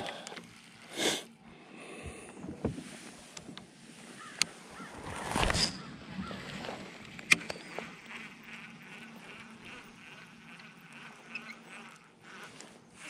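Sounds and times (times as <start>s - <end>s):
insect buzzing: 0.0s - 2.0s, 4.2s - 6.8s, 7.4s - 13.0s
rustle: 2.8s - 6.8s.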